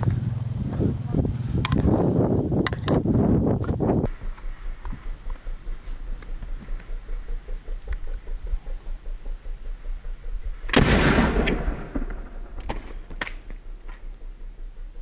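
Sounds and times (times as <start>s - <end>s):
launcher firing bang: 10.7s - 13.5s.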